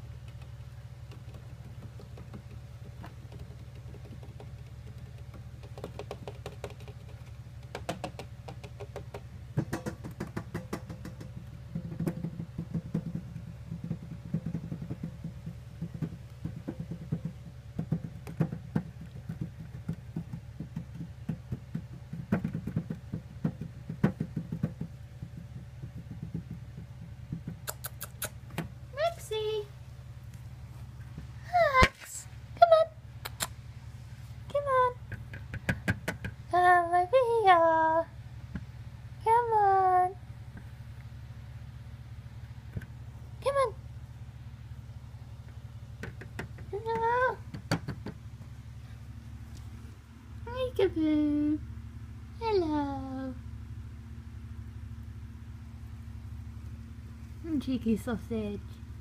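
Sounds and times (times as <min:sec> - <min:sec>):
hamster clicking in plastic cage: 0:00.0 - 0:28.7
steady low hum: 0:00.0 - 0:59.0.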